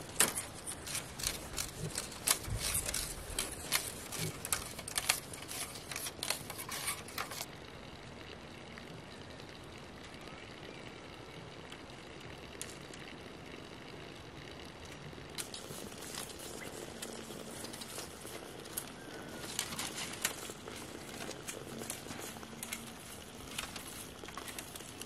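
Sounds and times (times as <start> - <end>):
blade splitting bamboo: 0.0 - 7.5
low outdoor hiss: 0.0 - 25.0.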